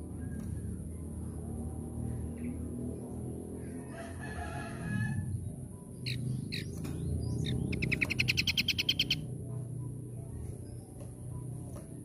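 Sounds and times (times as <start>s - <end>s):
bird calling with trill: 5.0s - 9.3s.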